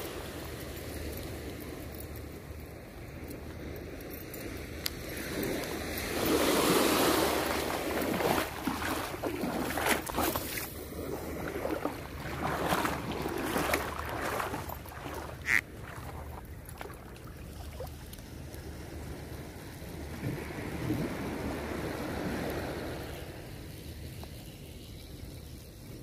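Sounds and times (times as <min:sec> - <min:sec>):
small waves lapping on sand: 0:00.0 - 0:26.0
wind on microphone: 0:17.8 - 0:23.6.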